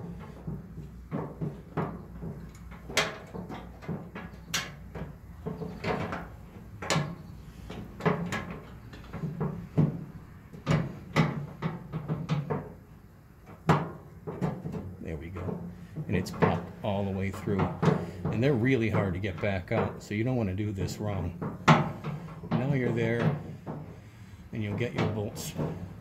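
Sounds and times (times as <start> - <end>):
metal latch clicks and knocks: 0.3 - 12.8.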